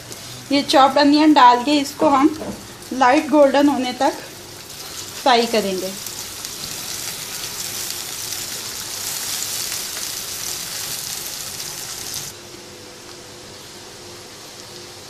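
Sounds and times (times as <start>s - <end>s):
onions sizzling in hot oil: 0.0s - 12.4s, 13.1s - 15.0s.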